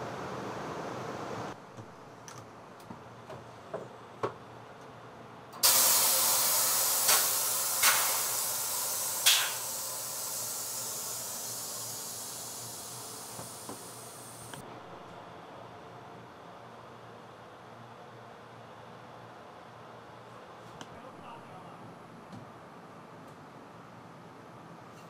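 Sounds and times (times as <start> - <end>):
compressed air hissing: 5.6 - 14.6.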